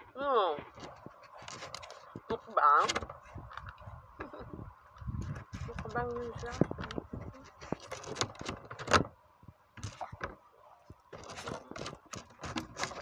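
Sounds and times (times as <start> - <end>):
clicks and rustles against phone: 0.6 - 9.1, 9.8 - 13.0.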